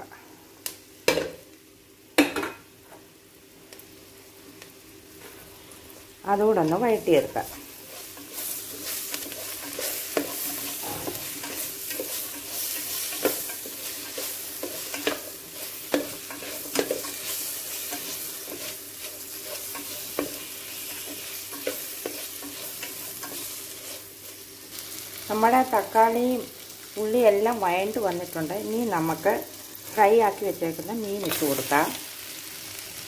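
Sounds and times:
onions sizzling in hot oil: 0.0 - 33.0
spatula scraping a pan: 7.6 - 24.5.

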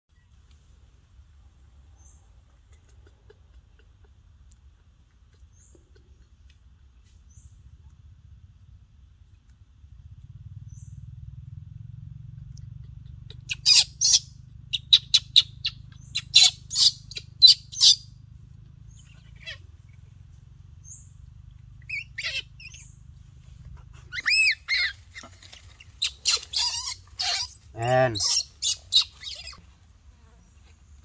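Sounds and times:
baby monkey squealing: 12.7 - 18.0, 18.9 - 20.0, 21.8 - 23.0, 24.0 - 29.6.

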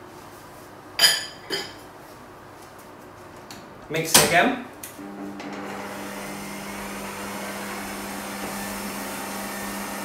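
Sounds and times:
electric stand mixer humming: 5.0 - 10.0.

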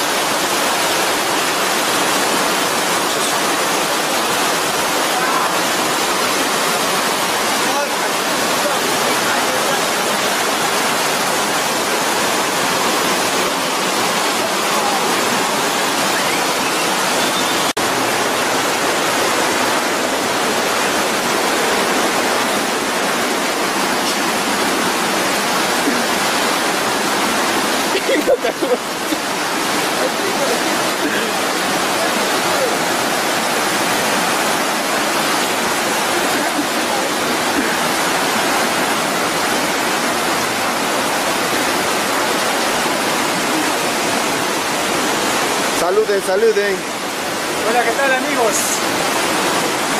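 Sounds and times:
river rushing over rocks: 0.0 - 49.9.

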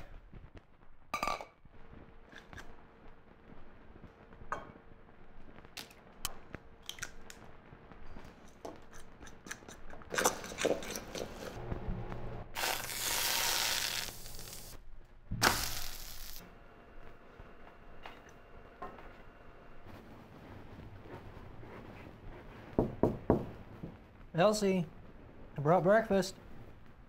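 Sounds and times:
batter sizzling in frying pan: 12.6 - 14.8, 15.4 - 16.4.

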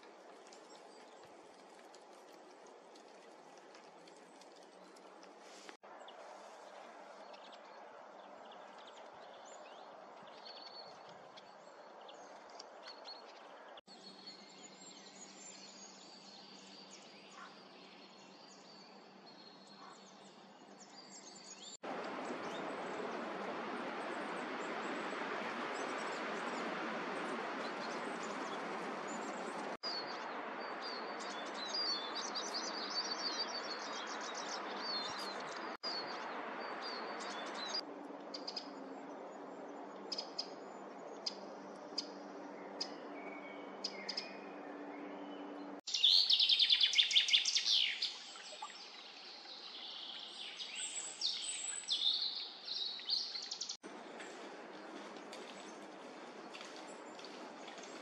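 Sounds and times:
wren trilling song: 45.9 - 53.8.

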